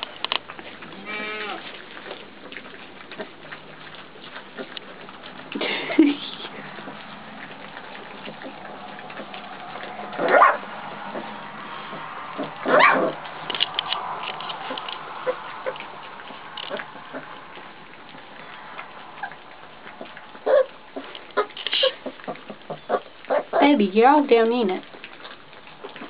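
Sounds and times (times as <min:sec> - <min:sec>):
puppy whining: 0:00.0 - 0:13.4, 0:14.5 - 0:23.7
puppies lapping and chewing: 0:00.0 - 0:26.0.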